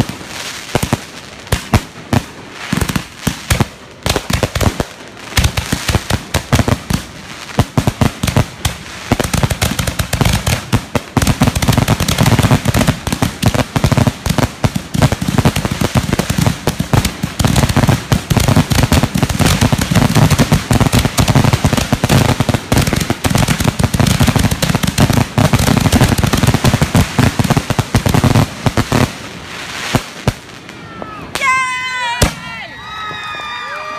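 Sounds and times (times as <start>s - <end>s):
fireworks popping and crackling: 0.0s - 33.9s.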